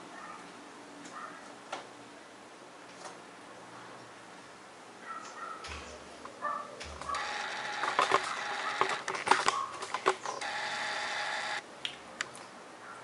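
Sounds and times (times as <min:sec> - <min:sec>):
sharp clicks: 0:06.8 - 0:12.5.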